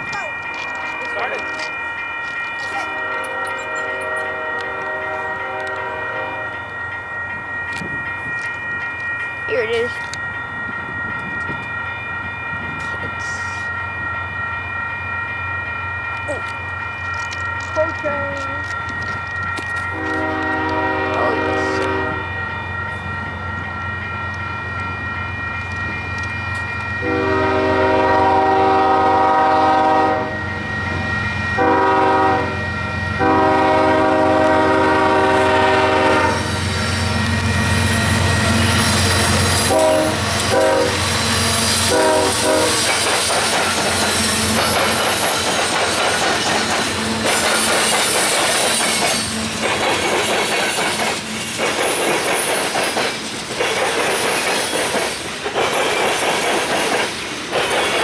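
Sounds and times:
train wheel clatter: 0:00.0 - 0:14.1, 0:16.1 - 0:29.9, 0:32.7 - 0:58.0
crossing bell ringing: 0:00.0 - 0:58.0
heavy train rumbling: 0:00.0 - 0:58.0
locomotive horn blasts: 0:02.8 - 0:06.6, 0:19.9 - 0:22.3, 0:27.0 - 0:30.4, 0:31.6 - 0:32.6, 0:33.2 - 0:36.4, 0:39.6 - 0:41.0, 0:41.9 - 0:42.8.

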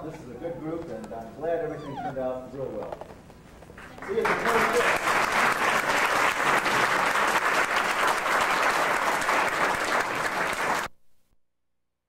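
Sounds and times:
audience applauding: 0:03.8 - 0:10.9.

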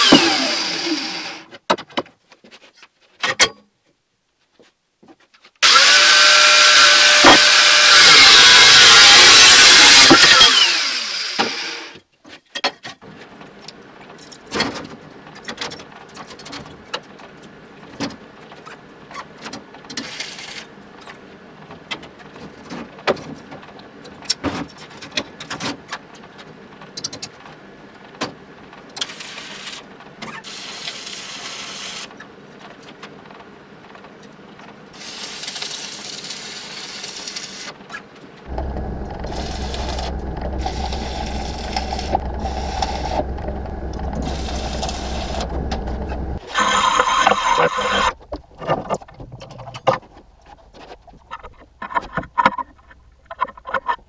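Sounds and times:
arc welding crackling sizzle: 0:35.0 - 0:37.7, 0:38.5 - 0:46.4
steady low hum: 0:38.5 - 0:46.4.

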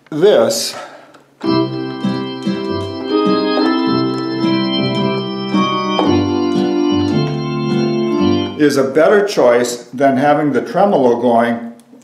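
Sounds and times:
accordion playing organ chords: 0:01.4 - 0:08.8.

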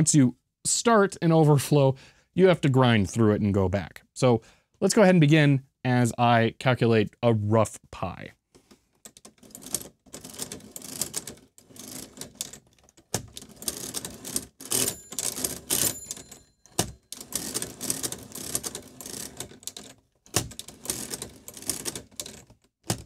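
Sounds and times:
mechanical calculator gears clicking: 0:09.1 - 0:23.0.

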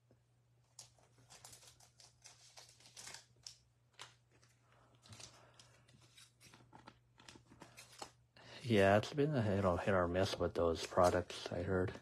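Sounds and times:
trading cards rustling: 0:00.7 - 0:08.2, 0:09.5 - 0:12.0
foil wrapper crinkling: 0:00.8 - 0:06.6.

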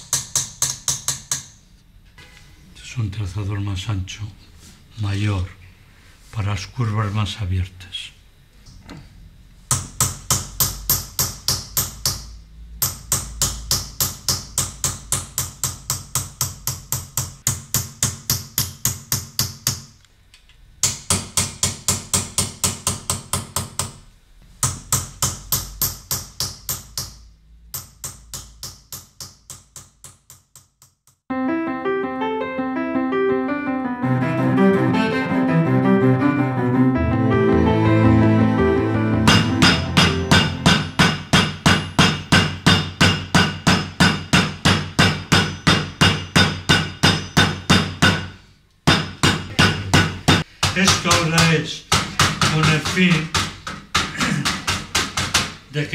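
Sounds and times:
piano music: 0:31.3 - 0:41.4.

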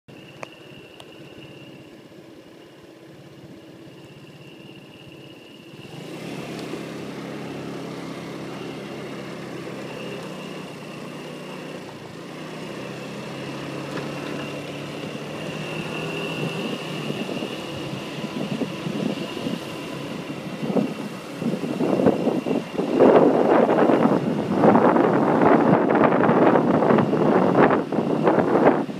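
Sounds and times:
vehicle engine running: 0:00.1 - 0:28.9
wind buffeting microphone: 0:13.4 - 0:28.9.

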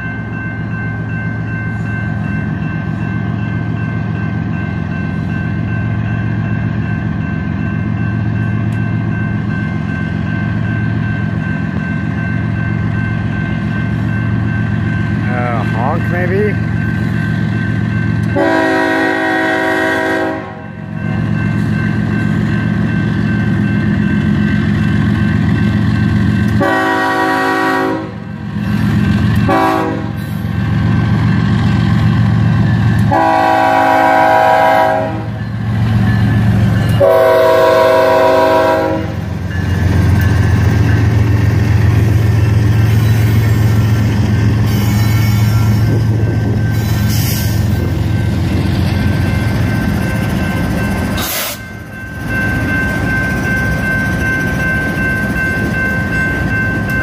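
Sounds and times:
locomotive air horn blasts: 0:18.4 - 0:20.6, 0:26.6 - 0:28.2, 0:29.5 - 0:30.2, 0:33.1 - 0:35.3, 0:37.0 - 0:39.2.

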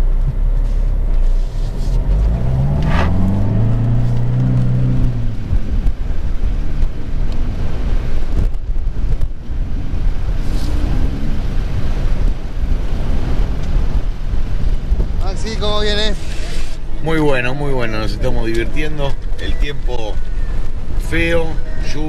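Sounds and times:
engine running inside cab: 0:00.0 - 0:16.0
wind buffeting microphone: 0:00.0 - 0:22.0.

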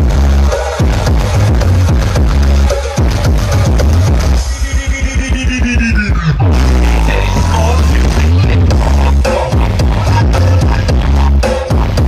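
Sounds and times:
electronic music with heavy bass: 0:00.0 - 0:12.0
falling bass sweeps: 0:06.1 - 0:09.3.

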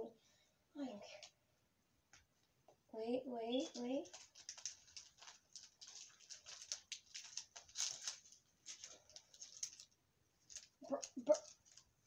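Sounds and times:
rustling and crinkling wrapping: 0:03.6 - 0:12.0.

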